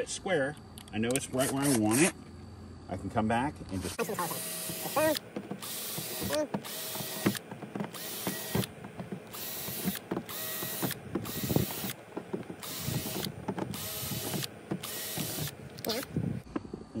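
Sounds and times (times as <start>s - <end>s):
cordless drill boring into plastic: 4.0s - 16.2s.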